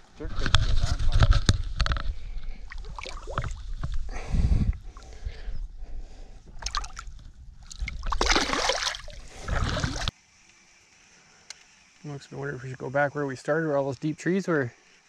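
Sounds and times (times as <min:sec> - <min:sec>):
water splashing and sloshing: 0:02.6 - 0:04.0, 0:06.5 - 0:10.1.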